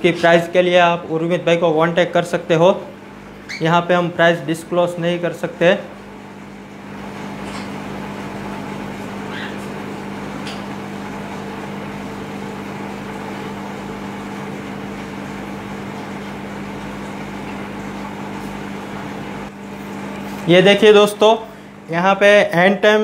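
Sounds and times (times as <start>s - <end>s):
machine hum: 0.0s - 23.0s.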